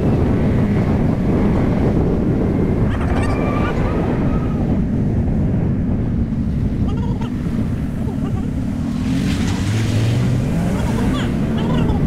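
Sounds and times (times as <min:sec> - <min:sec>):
wind noise on microphone: 0:00.0 - 0:12.0.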